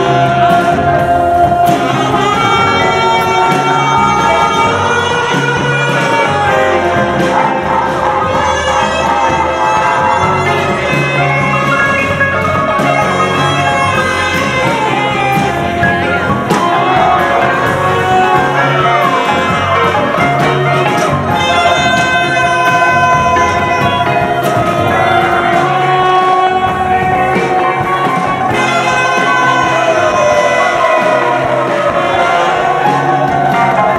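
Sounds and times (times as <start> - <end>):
drums: 0.0 - 33.9
electric guitars: 0.0 - 33.9
voices singing together: 0.0 - 33.9.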